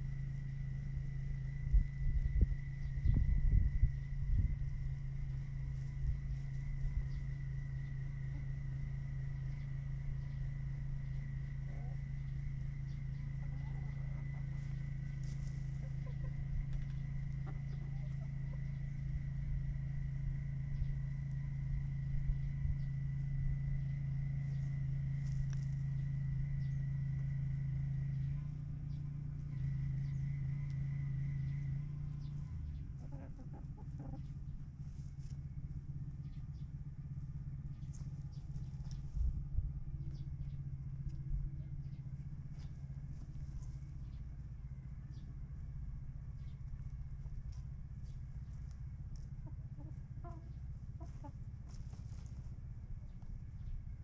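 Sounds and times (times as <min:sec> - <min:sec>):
high whine: 0:00.0 - 0:32.8
low mechanical hum: 0:00.0 - 0:54.0
chicken clucking: 0:12.8 - 0:19.0, 0:32.2 - 0:35.3, 0:47.2 - 0:52.3.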